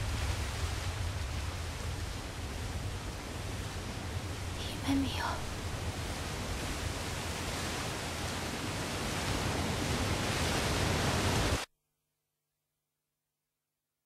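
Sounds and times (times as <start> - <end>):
rushing wash of noise: 0.0 - 11.7.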